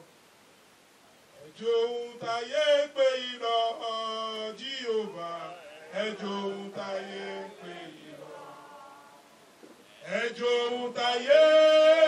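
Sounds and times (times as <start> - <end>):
man chanting into a microphone: 1.4 - 8.0, 9.9 - 12.0.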